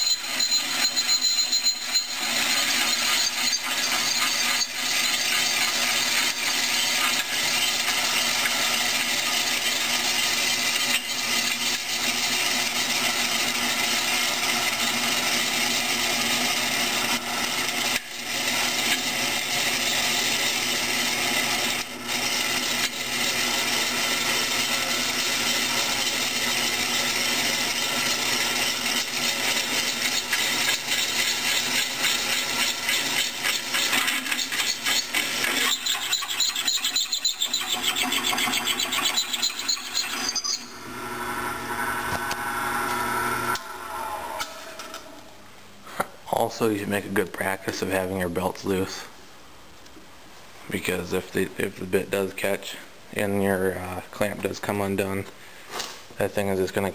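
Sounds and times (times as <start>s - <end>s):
drill press cutting metal: 0.0s - 45.4s.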